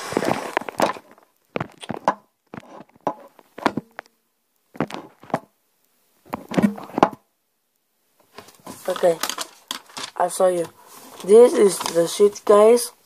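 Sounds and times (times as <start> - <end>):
paper and phone handled on table: 0.0 - 4.1, 4.8 - 5.5, 8.3 - 12.4.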